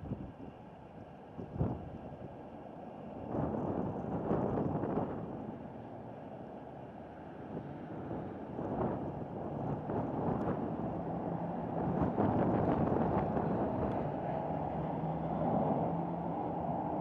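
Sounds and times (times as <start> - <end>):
wind buffeting microphone: 0.0 - 0.5, 1.4 - 2.3, 3.2 - 5.6, 7.6 - 17.0.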